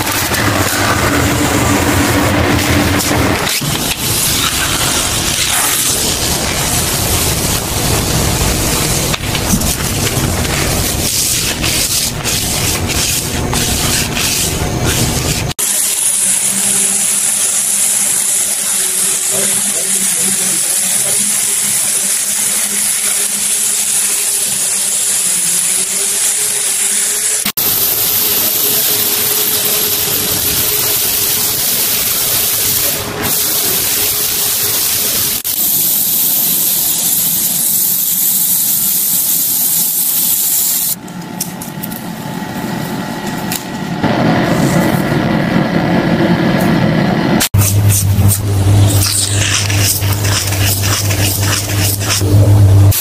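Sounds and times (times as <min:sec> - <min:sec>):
paint spray gun hiss: 0:26.8 - 0:41.0.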